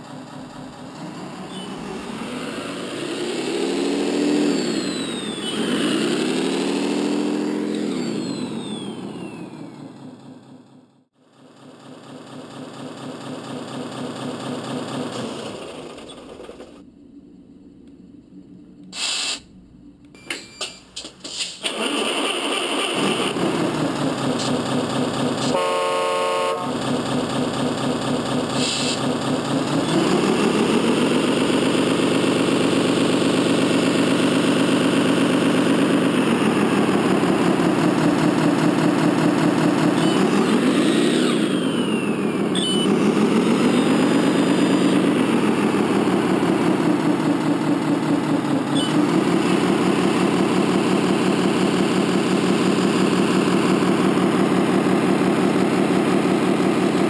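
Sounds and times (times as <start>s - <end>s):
simulated truck engine revving: 0.0s - 20.1s, 21.3s - 57.0s
falling whistle: 4.3s - 6.0s, 7.8s - 9.8s, 39.9s - 43.0s
toy truck horn blast: 25.4s - 27.0s.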